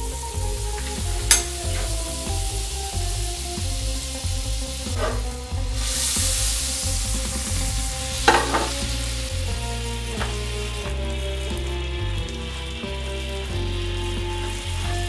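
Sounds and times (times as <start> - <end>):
butter sizzling in a skillet: 0.0 - 15.0
pan knocking: 0.8 - 2.3, 4.9 - 5.4, 8.1 - 9.0
bread slices laid into pan: 8.3 - 8.9.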